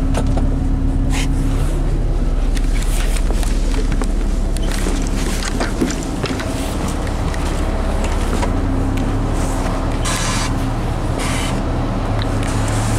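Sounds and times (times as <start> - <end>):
bus engine drone: 0.0 - 12.9.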